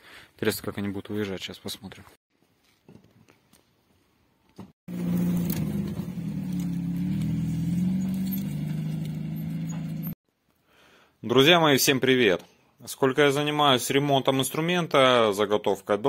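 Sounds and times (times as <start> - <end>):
truck engine running: 4.9 - 10.2.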